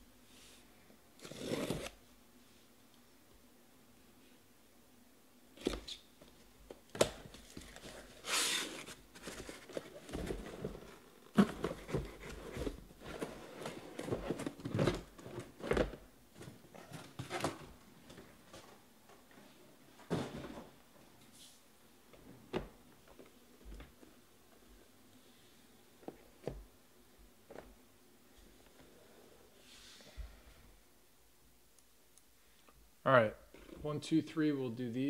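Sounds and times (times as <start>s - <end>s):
boxes being handled: 5.6s - 19.4s
cardboard knocks and thumps: 9.2s - 17.6s.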